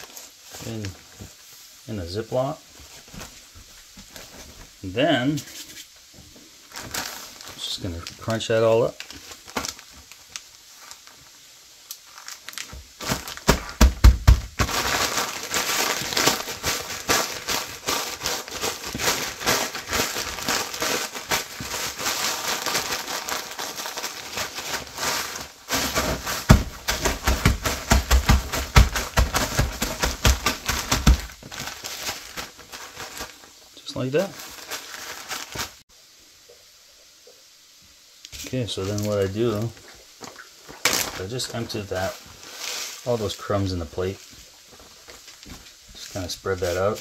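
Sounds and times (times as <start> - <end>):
crackers crushed in plastic bag: 6.6 - 35.8, 40.7 - 44.2.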